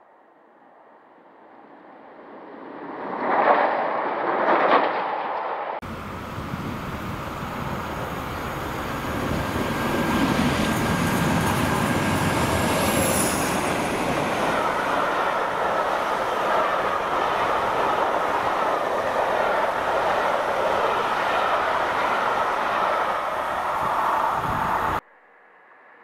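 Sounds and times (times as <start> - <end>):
diesel locomotive passing: 5.8 - 25.0.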